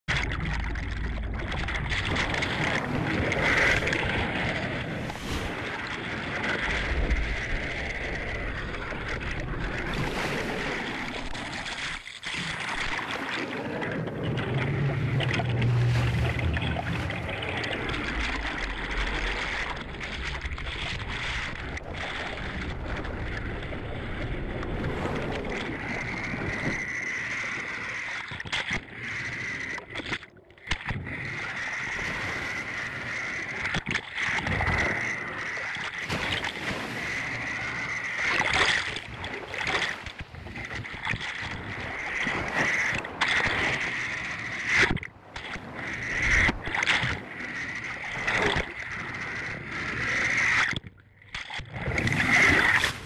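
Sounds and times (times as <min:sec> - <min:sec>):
sea water rushing and splashing: 0:00.1 - 0:53.0
steady high whine: 0:13.0 - 0:19.8.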